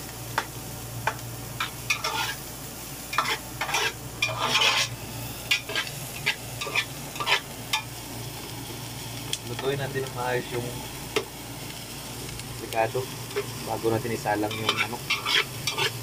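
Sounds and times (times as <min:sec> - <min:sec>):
vegetables sizzling: 0:00.0 - 0:16.0
metal spatula scraping a pot: 0:01.9 - 0:02.4, 0:03.2 - 0:07.5, 0:14.5 - 0:16.0.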